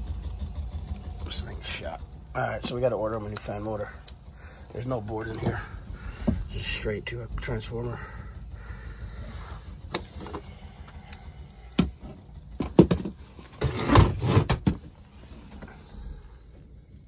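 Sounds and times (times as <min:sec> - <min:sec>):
low steady hum: 0:00.0 - 0:17.0
sharp knocks and clatters: 0:11.8 - 0:15.0.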